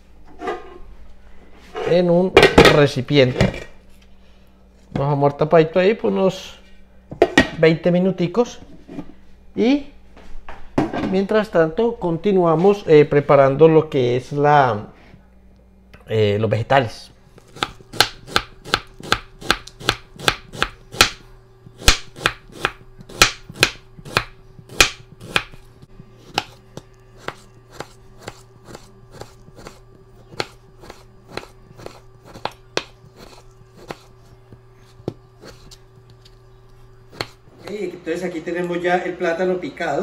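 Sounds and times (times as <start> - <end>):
knife chopping on plastic board: 17.4 - 36.2, 37.1 - 37.8.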